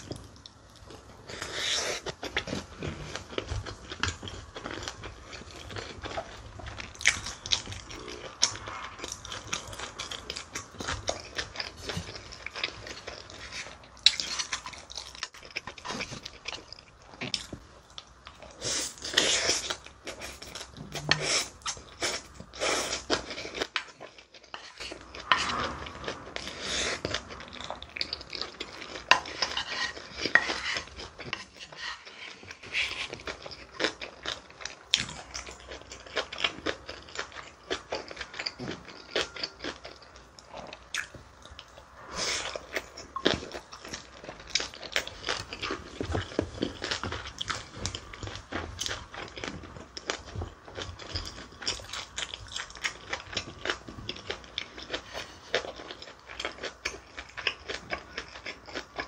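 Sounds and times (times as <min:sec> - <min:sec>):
chewing: 0:00.0 - 0:59.0
spoon scraping a bowl: 0:29.3 - 0:32.9.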